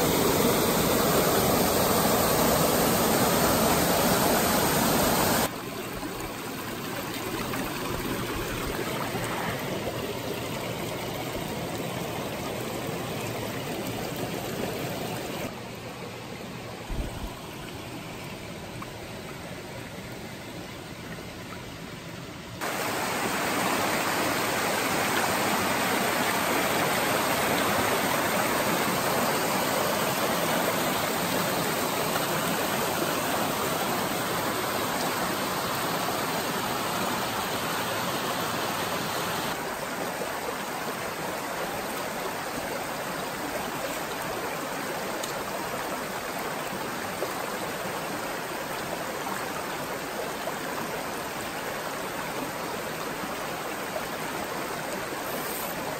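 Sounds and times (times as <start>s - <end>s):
stream rushing over cascades: 0.0s - 55.9s.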